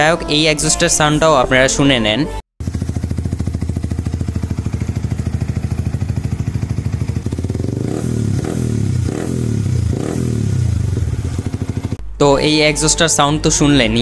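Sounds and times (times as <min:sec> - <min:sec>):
motorcycle engine revving: 0:02.6 - 0:12.1.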